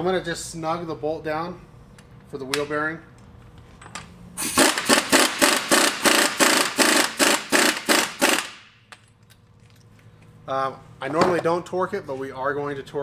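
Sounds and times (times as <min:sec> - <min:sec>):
pneumatic impact wrench hammering: 0:04.4 - 0:08.8.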